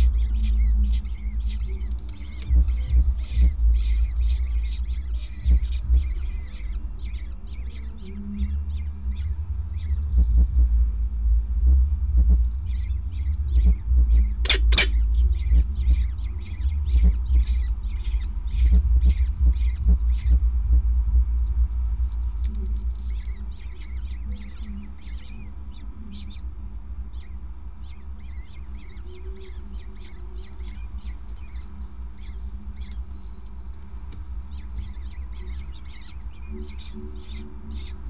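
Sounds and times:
falcon chicks begging cheeps: 0.0s - 9.9s, 12.7s - 20.3s
low rumble: 0.0s - 38.0s.

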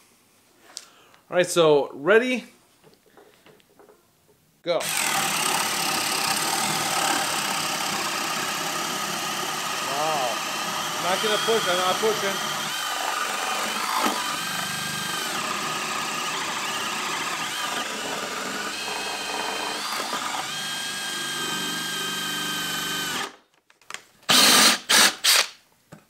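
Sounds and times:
drill boring into wood: 4.8s - 23.4s, 24.3s - 25.6s.

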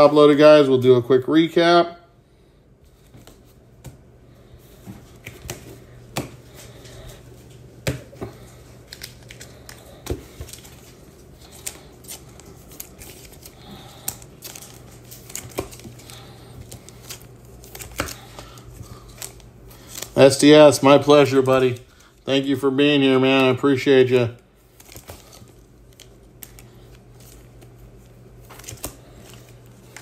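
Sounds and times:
cards sliding into plastic sleeves: 7.9s - 20.5s, 24.7s - 30.0s.

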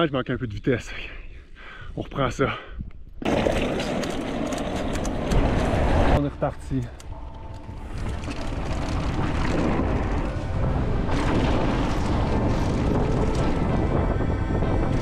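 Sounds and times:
wind buffeting microphone: 7.4s - 15.0s
bike tyres rolling on gravel: 7.8s - 15.0s.

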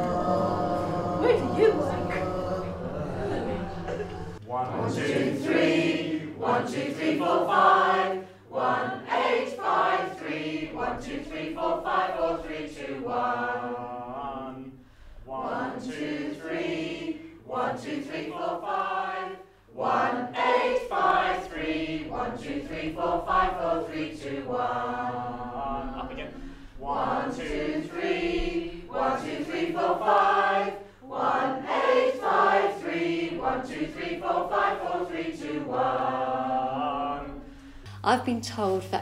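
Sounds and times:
choir singing numbers: 0.0s - 38.4s.

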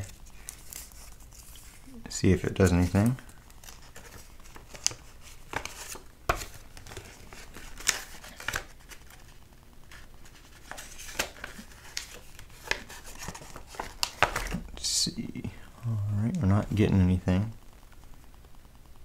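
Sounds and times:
faint rustling: 0.0s - 18.3s
low steady hum: 0.0s - 19.0s.

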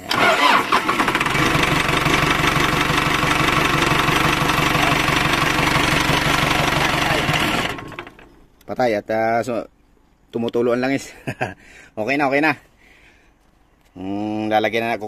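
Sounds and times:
diesel engine running: 0.1s - 8.4s.

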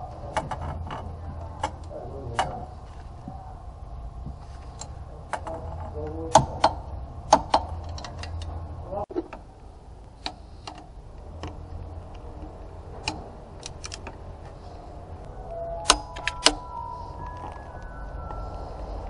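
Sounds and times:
sharp knocks: 6.3s - 7.8s.

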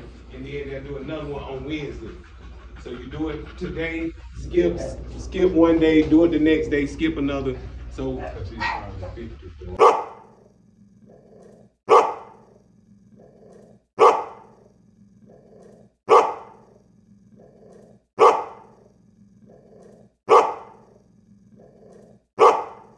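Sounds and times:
dog barking: 8.6s - 9.2s, 9.8s - 10.4s, 11.9s - 12.6s, 14.0s - 14.6s, 16.1s - 16.8s, 18.2s - 18.8s, 20.3s - 21.0s, 22.4s - 22.9s.

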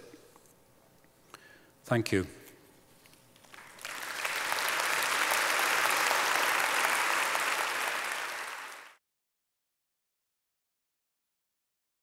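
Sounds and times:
audience applauding: 3.4s - 9.0s.

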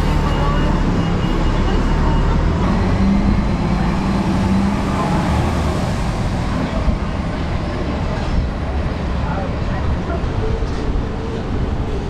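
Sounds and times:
engine hum: 0.0s - 12.0s
road traffic rumble: 0.0s - 12.0s.

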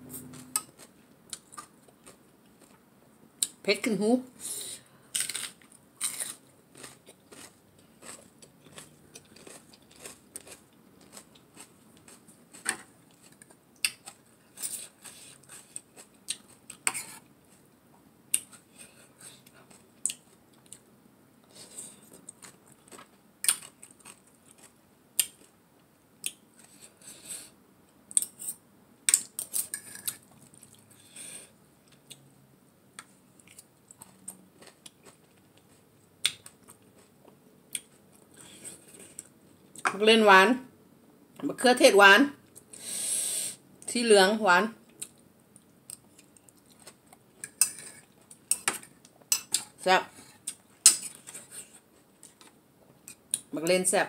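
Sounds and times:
chewing: 5.2s - 17.6s, 29.3s - 31.0s.

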